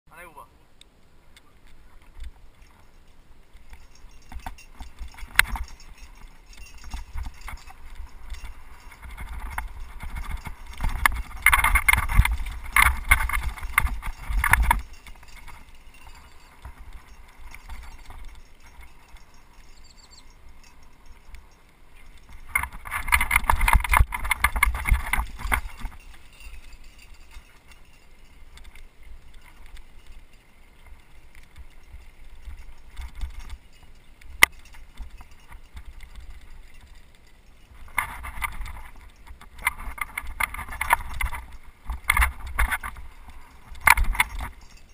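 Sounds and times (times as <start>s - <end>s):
mountain bike clattering over bumps: 3.6s - 19.4s.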